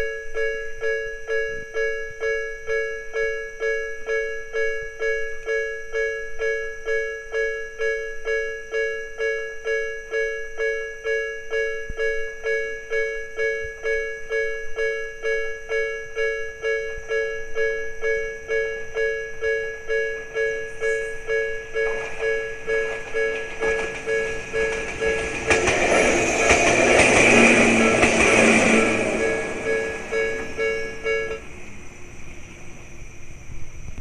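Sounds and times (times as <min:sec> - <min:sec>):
level crossing alarm ringing: 0:00.0 - 0:32.3.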